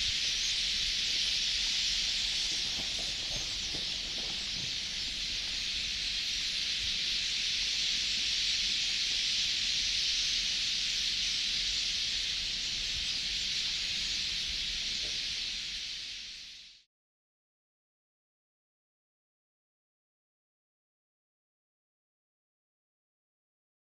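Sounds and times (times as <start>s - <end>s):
insect chorus drone: 0.0s - 16.9s.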